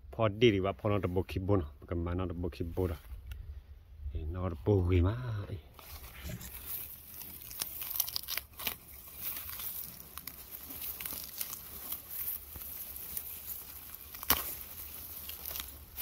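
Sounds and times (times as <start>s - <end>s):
dry grass rustling and crackling: 5.7s - 16.0s
sharp cracks of stalks: 5.8s - 16.0s.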